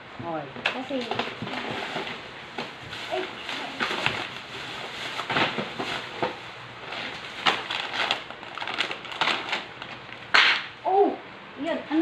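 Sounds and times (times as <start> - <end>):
plastic bags crinkling and rustling: 0.8 - 10.3.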